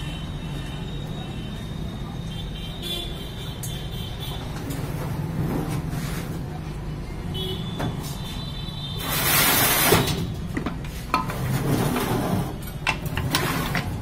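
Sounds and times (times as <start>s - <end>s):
metal scraping slide: 9.0s - 10.2s, 10.9s - 14.0s.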